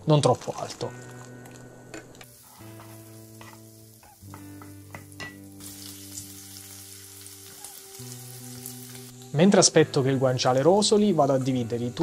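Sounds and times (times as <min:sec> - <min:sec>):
meat sizzling in a frying pan: 0:02.2 - 0:09.4.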